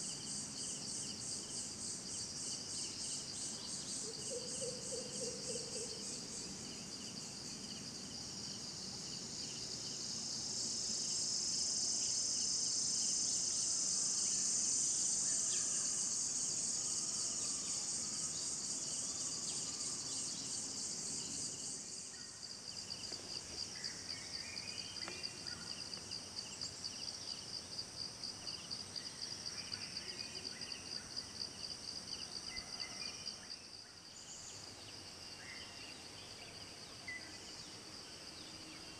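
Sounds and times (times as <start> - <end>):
pulsing insect trill: 0.0 - 23.2
insects chirping chorus: 0.0 - 38.9.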